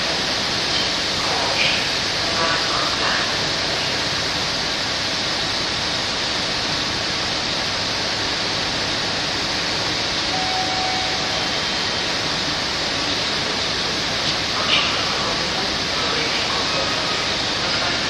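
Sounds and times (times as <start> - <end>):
faint thin tone: 10.3 - 11.7.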